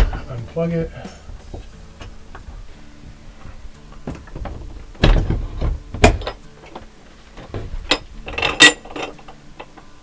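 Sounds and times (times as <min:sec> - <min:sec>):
metal parts knocking and clinking: 0:04.1 - 0:06.8, 0:07.4 - 0:09.8.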